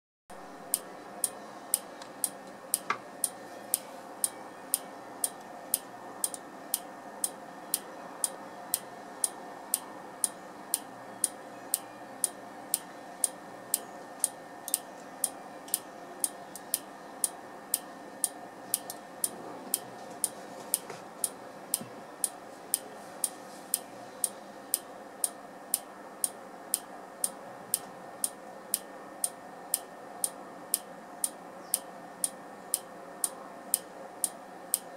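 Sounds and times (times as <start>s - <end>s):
steady hum: 0.3s - 34.9s
clock ticking clicks: 0.7s - 22.8s.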